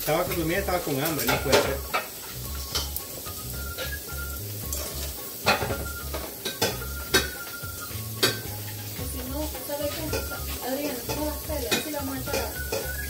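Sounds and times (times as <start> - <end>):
tortilla sizzling in hot oil: 0.0 - 13.0
fork clicking against pan: 6.4 - 7.4, 8.2 - 8.8, 9.5 - 13.0.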